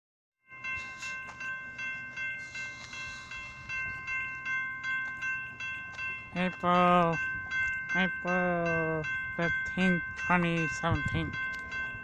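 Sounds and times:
railroad crossing bell ringing: 0.4 - 12.0.

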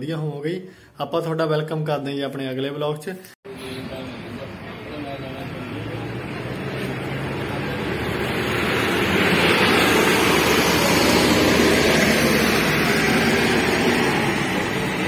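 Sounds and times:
steady rushing air roar: 3.5 - 15.0.

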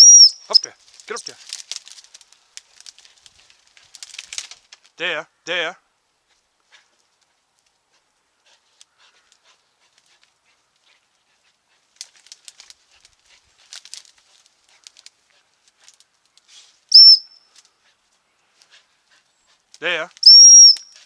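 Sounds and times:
shrill dog whistle pip: 0.0 - 0.6, 16.9 - 17.5, 20.2 - 21.0
crackling and rustling in brambles: 0.5 - 5.0, 6.1 - 21.0.

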